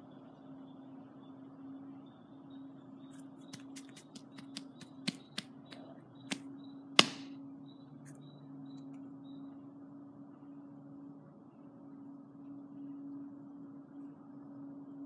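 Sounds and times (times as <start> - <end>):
sharp irregular clicks: 3.5 - 5.5.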